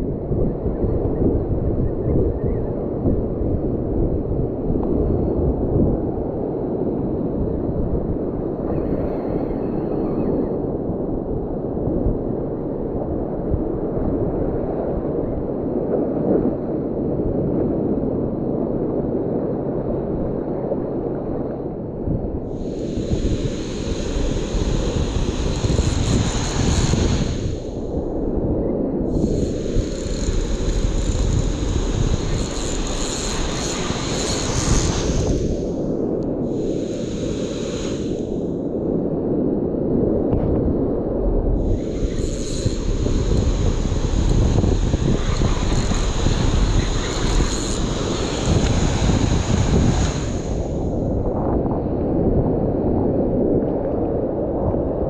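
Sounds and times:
wind on microphone: 0:00.0 - 0:55.0
surf washing: 0:22.5 - 0:28.0, 0:29.1 - 0:38.6, 0:41.6 - 0:51.3.

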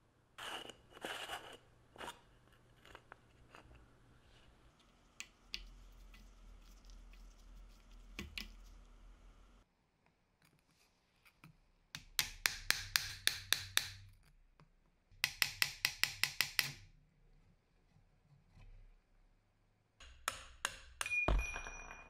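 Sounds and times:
hammer tapping plastic pipe: 0:12.0 - 0:14.0, 0:15.2 - 0:16.9, 0:20.0 - 0:21.2.

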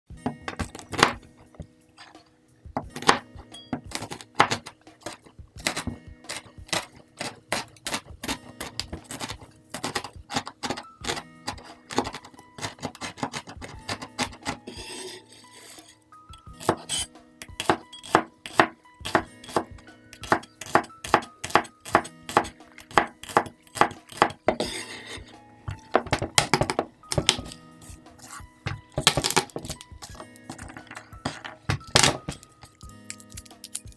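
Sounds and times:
background music: 0:00.1 - 0:33.9
cleaver chopping on wooden board: 0:02.8 - 0:14.6, 0:16.6 - 0:24.8, 0:28.2 - 0:32.4
blade scraping across board: 0:12.6 - 0:16.0, 0:24.5 - 0:25.4.

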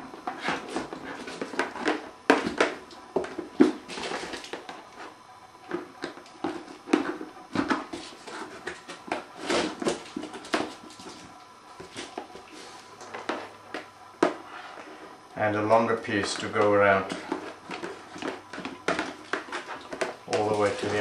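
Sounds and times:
wire rustling through plastic box: 0:17.0 - 0:21.0.

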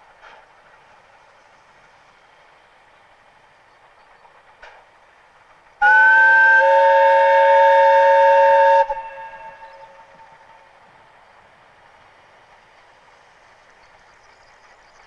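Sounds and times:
train running: 0:00.0 - 0:15.0
steam whistle: 0:05.8 - 0:10.5.

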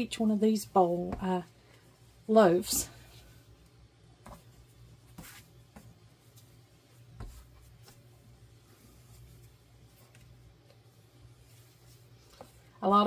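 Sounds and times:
hands kneading dough: 0:00.0 - 0:13.0
soft pats and thumps: 0:01.0 - 0:01.5, 0:04.2 - 0:08.2.

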